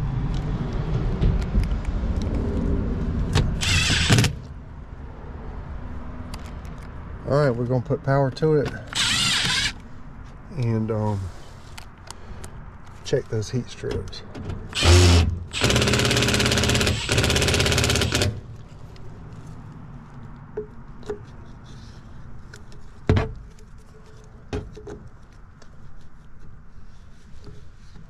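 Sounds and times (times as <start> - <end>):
impact driver hammering screws: 3.5 - 4.5, 8.9 - 9.8, 14.7 - 18.4.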